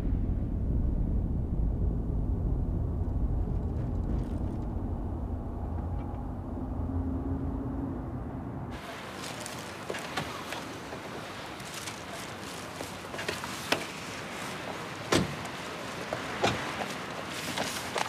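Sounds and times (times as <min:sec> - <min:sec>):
faint hum: 0:00.0 - 0:09.7
road and engine rumble in car: 0:00.0 - 0:18.0.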